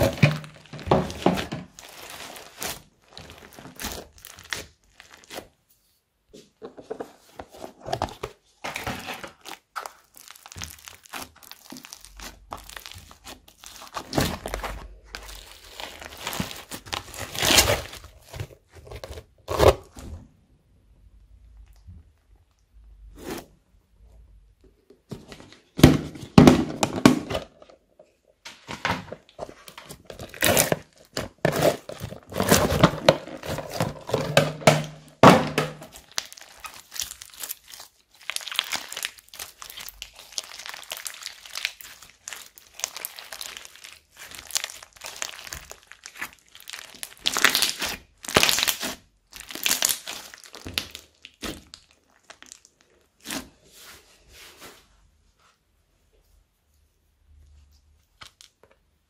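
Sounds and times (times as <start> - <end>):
slime squishing and crackling: 0.0 - 5.6, 7.7 - 20.1, 28.9 - 53.7.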